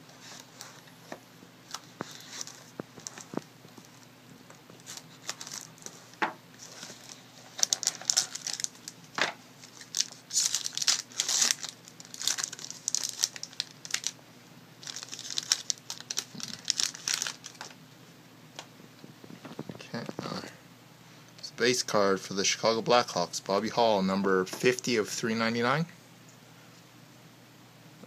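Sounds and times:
plastic shrink-wrap crinkling and tearing: 1.7s - 4.0s, 4.7s - 6.0s, 6.6s - 9.0s, 9.6s - 14.2s, 14.8s - 17.8s.

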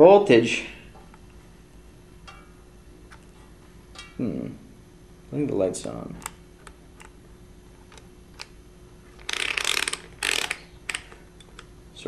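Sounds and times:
rotary dial clicking: 9.2s - 11.7s.

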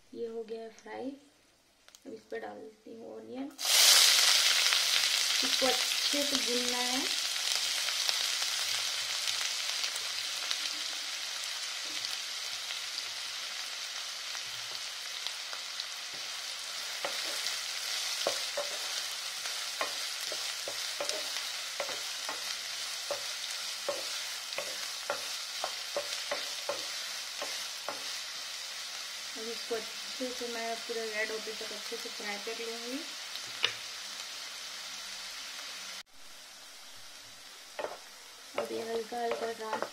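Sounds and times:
onions sizzling in hot oil: 3.4s - 39.9s.

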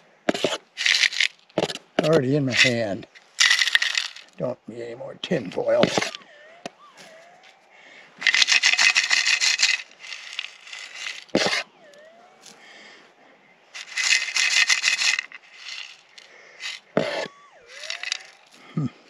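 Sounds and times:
pick scraping through gravel: 0.3s - 4.4s, 5.6s - 6.2s, 8.2s - 11.8s, 13.8s - 18.8s.

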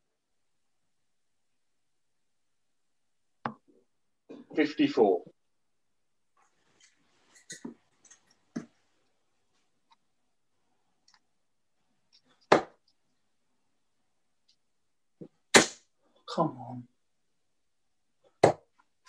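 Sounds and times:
darts hitting dartboard: 12.5s - 12.8s, 15.5s - 15.8s, 18.4s - 18.7s.

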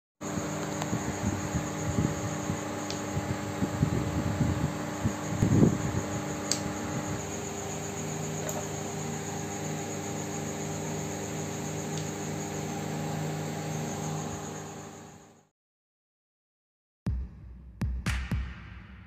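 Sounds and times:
mechanical hum with hiss: 0.2s - 15.5s
sharp click: 6.4s - 6.7s.

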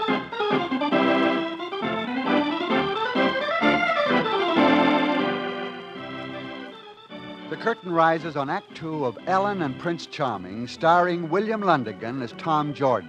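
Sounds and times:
organ music: 0.0s - 13.0s.

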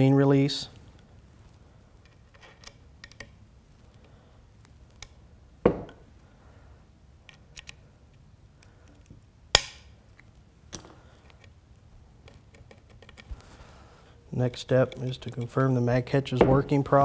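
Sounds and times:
small metal clicks: 2.0s - 5.2s, 7.2s - 11.6s, 12.2s - 13.5s, 14.4s - 16.4s.

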